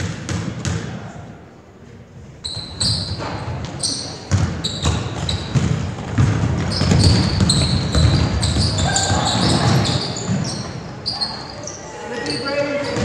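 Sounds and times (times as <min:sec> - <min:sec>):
basketball bouncing: 0:00.0 - 0:01.0, 0:04.3 - 0:10.8
murmur of spectators: 0:00.0 - 0:13.0
sneakers squeaking on hardwood floor: 0:02.4 - 0:13.0.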